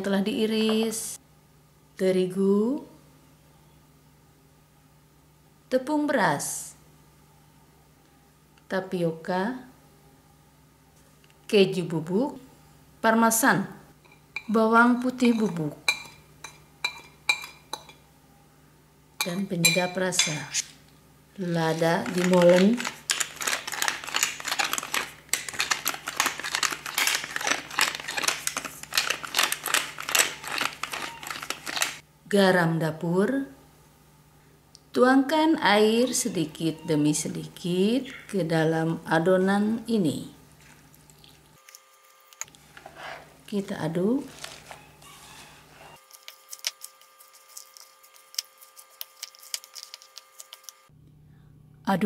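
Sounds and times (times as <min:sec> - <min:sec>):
faint steady hum: 0:00.0 - 0:52.0
pepper mill grinding: 0:15.2 - 0:16.1, 0:21.4 - 0:32.0, 0:44.2 - 0:50.9
spoon stirring wet batter: 0:15.2 - 0:18.0, 0:21.4 - 0:32.0.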